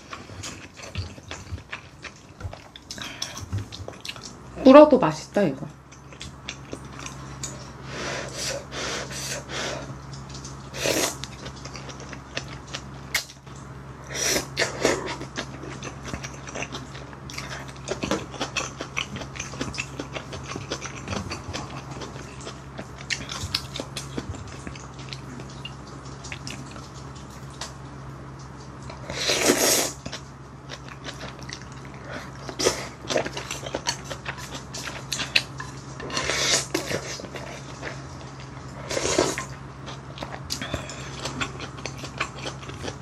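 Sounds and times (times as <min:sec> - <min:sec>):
wet chewing: 0:00.0 - 0:04.4, 0:14.3 - 0:27.8, 0:28.4 - 0:43.0.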